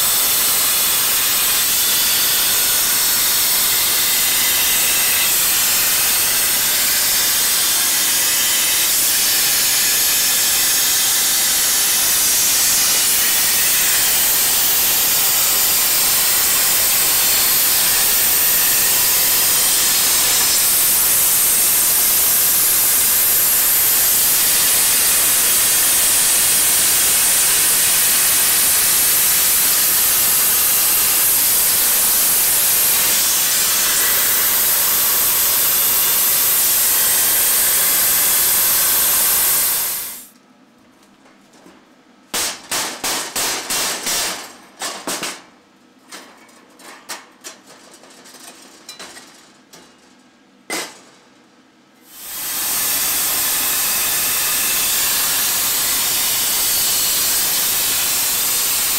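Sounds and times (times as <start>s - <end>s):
plasma cutter hissing: 0.0s - 40.3s, 52.1s - 58.9s.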